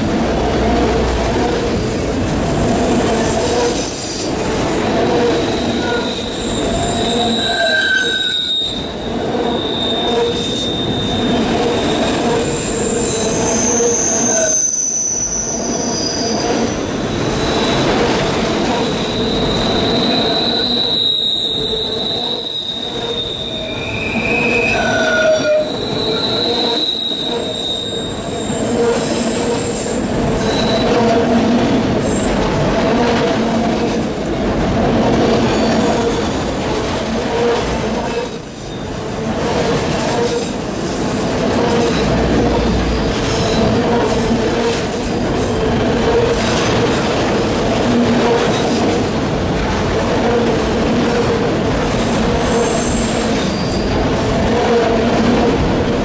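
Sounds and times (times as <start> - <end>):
steel wheels on rails: 0.0 - 56.0
high-pitched wheel squeals: 5.2 - 32.3, 35.4 - 39.3, 52.3 - 53.9.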